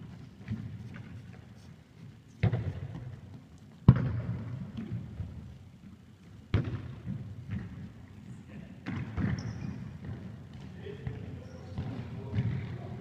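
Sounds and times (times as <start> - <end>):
football kicks: 2.4 - 3.1, 3.8 - 5.2, 6.5 - 7.8.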